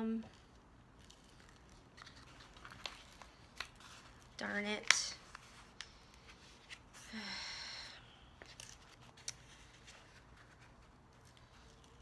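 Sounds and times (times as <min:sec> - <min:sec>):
person sighing: 0:07.0 - 0:08.1.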